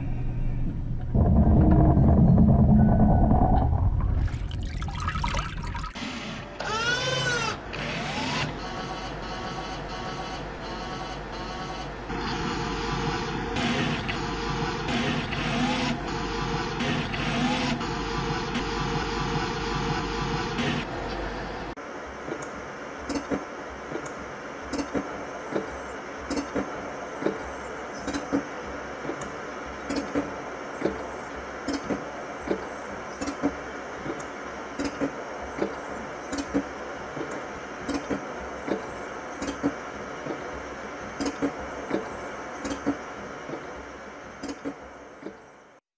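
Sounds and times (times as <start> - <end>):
machine hum: 0.0 - 6.7.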